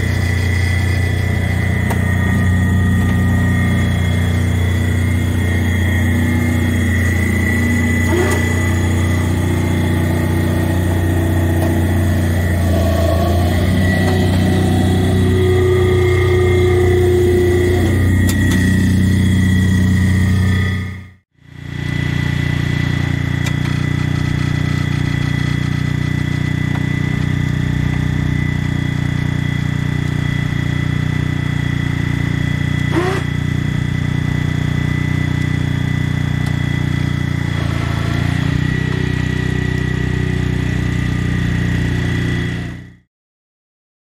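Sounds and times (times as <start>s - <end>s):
short rising squeal: 0.0s - 21.2s, 32.8s - 33.5s
high whine: 0.0s - 43.0s
lawn tractor engine running: 0.0s - 43.0s.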